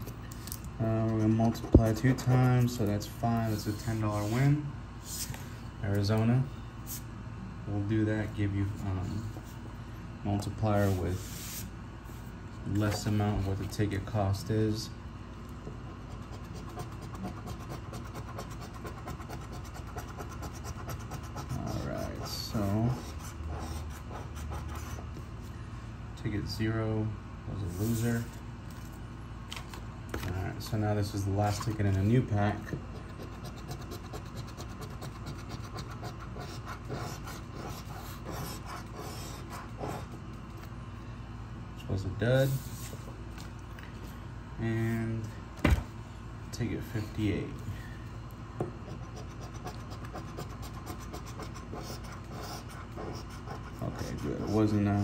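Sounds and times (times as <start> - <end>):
scratching lottery ticket coating: 16.0 - 24.8, 33.1 - 40.1, 49.0 - 54.8.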